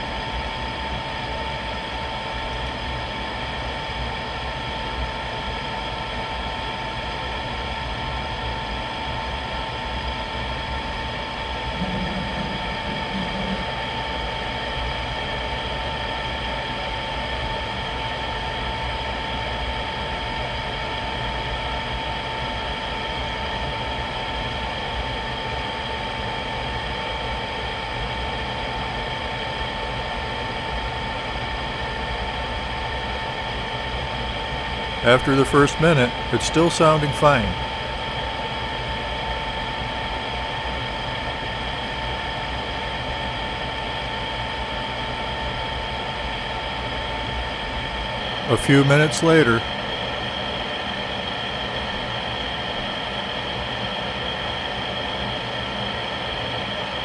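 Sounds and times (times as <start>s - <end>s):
vent blower motor humming: 11.6s - 14.4s.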